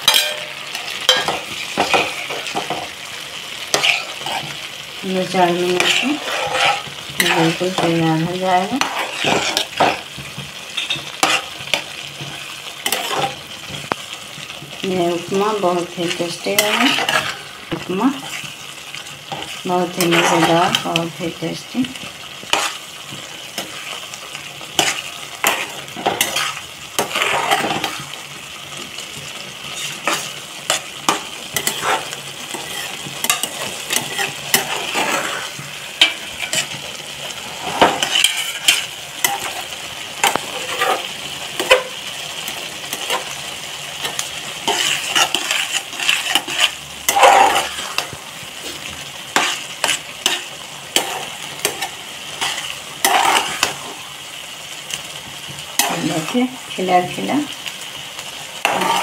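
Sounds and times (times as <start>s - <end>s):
metal spatula scraping pan: 0.0s - 28.5s, 29.1s - 54.0s, 55.8s - 56.4s, 58.6s - 59.0s
food sizzling: 0.0s - 59.0s
spatula clinking against pan: 0.1s - 2.0s.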